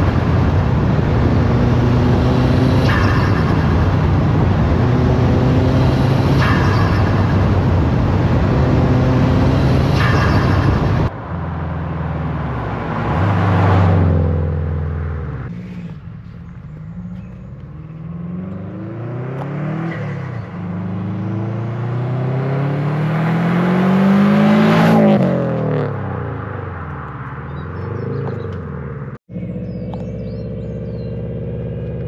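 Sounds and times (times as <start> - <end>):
car engine revving: 0.0 - 26.6, 27.5 - 32.0.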